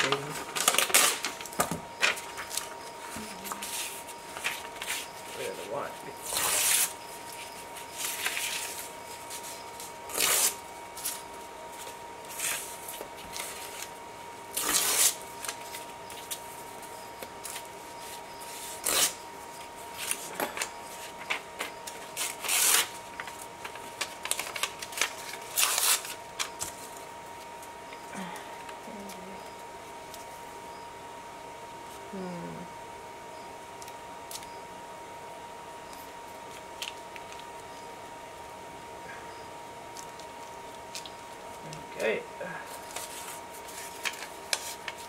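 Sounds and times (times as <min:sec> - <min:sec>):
paper tearing and rustling: 0:00.0 - 0:02.8, 0:03.4 - 0:11.2, 0:11.8 - 0:13.9, 0:14.5 - 0:16.6, 0:17.4 - 0:19.2, 0:19.9 - 0:27.0, 0:42.7 - 0:45.0.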